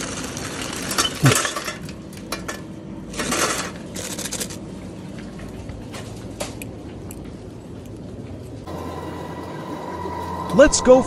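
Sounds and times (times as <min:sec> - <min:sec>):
small hard objects clattering: 0:00.0 - 0:04.6
background hum: 0:00.0 - 0:11.0.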